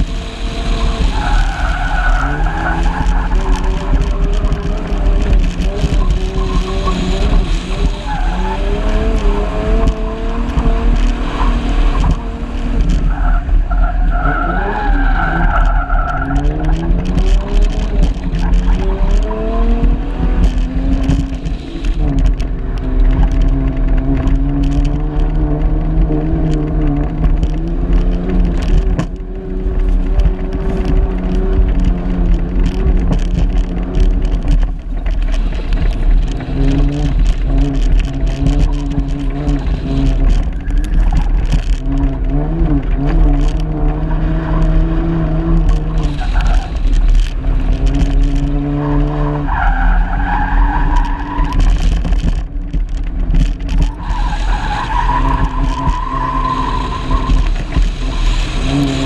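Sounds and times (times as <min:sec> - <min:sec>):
car engine revving: 0:00.0 - 0:59.0
wind and road noise: 0:00.0 - 0:59.0
tyres sliding on dirt: 0:29.7 - 0:59.0.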